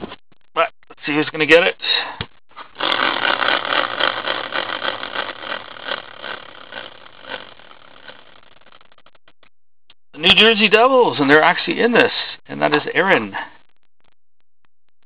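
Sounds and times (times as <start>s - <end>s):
prize wheel whirring and ticking: 2.8s - 8.8s.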